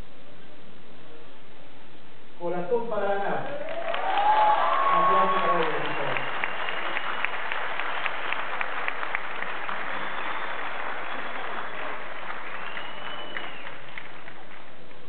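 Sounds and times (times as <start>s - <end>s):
audience applauding: 3.5s - 15.0s.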